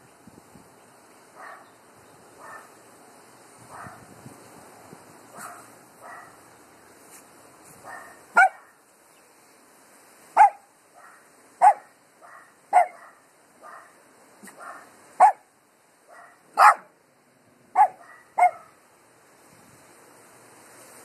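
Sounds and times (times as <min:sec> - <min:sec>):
small dogs barking: 0:01.4 - 0:01.8, 0:02.4 - 0:02.8, 0:03.7 - 0:04.0, 0:05.3 - 0:06.4, 0:07.8 - 0:08.8, 0:10.4 - 0:15.5, 0:16.1 - 0:17.0, 0:17.7 - 0:18.8.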